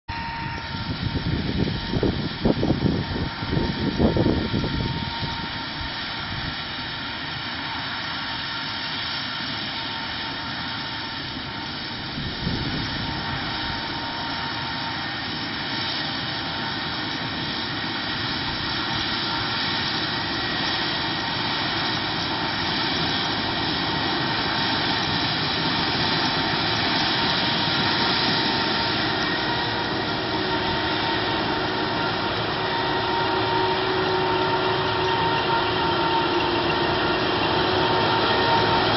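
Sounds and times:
high whining tones: 0.1 - 7.0, 18.4 - 38.9
combine harvester engine drone: 0.1 - 38.9.

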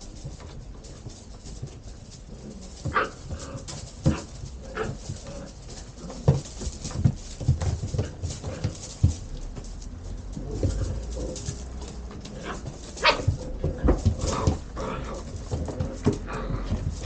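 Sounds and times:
scrabbling against cardboard: 0.0 - 17.0.

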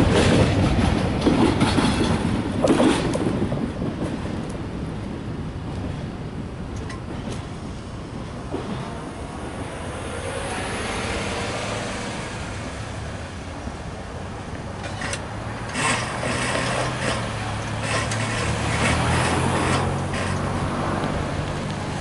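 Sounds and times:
steady traffic rumble: 0.0 - 22.0
vehicle engines running: 9.3 - 22.0.

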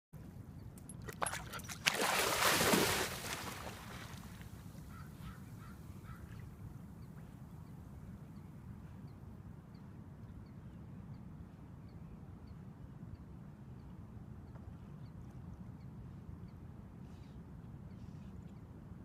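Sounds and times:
dog splashing in water: 1.0 - 4.5.

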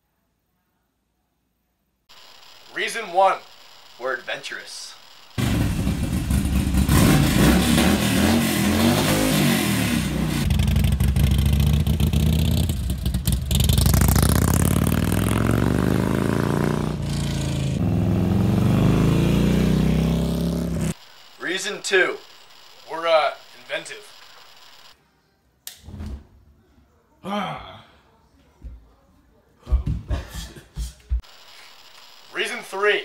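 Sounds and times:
motorcycle engine revving: 5.4 - 21.0.

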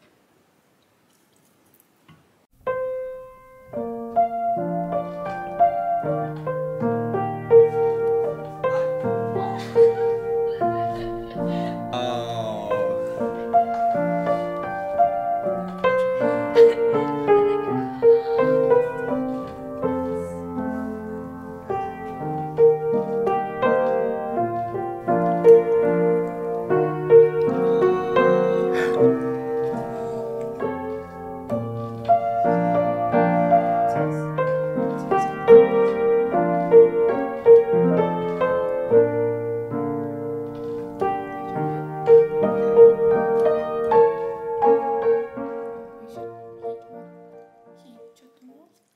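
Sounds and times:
gentle piano music: 2.6 - 48.3.

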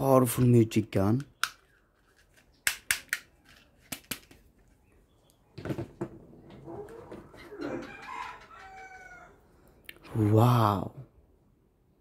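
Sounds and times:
handling rustle: 1.6 - 2.6
rooster crowing: 6.7 - 9.4.

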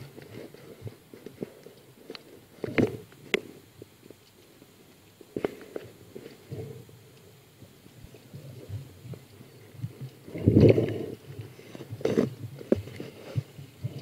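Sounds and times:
muffled underwater rumbling: 6.0 - 14.0.

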